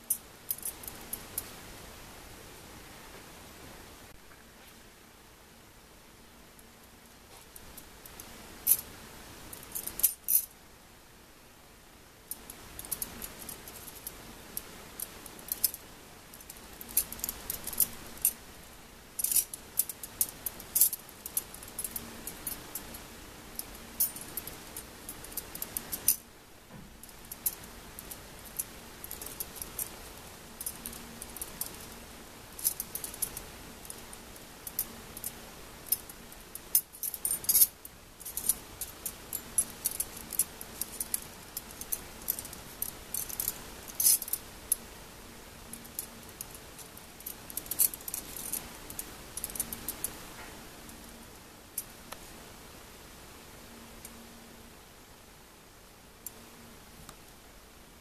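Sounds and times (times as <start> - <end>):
metal wire puzzle pieces clinking: 9.6 - 10.5, 12.4 - 18.4, 19.2 - 26.2, 27.0 - 44.9, 45.7 - 50.2.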